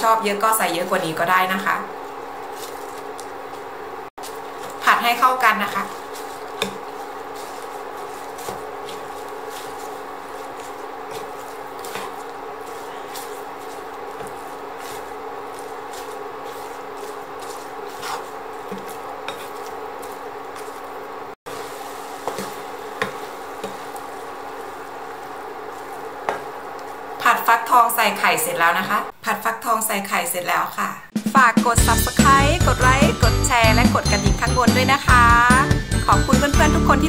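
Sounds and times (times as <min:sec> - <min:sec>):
spatula stirring food in pan: 0:01.5 - 0:28.3.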